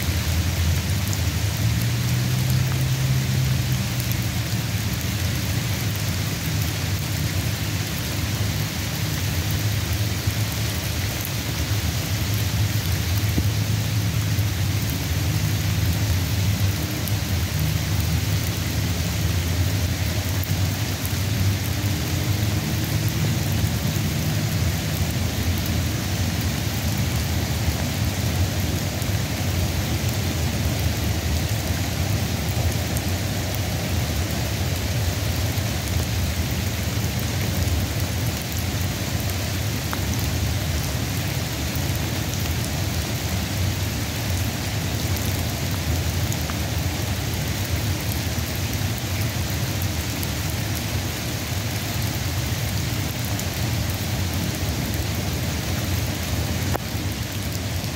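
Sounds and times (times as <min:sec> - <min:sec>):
steady rain hiss: 0:00.0 - 0:57.9.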